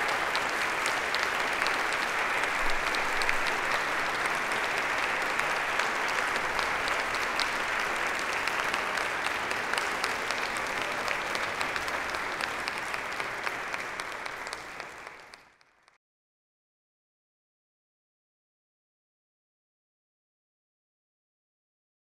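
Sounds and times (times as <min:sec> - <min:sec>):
audience applauding: 0:00.0 - 0:16.0.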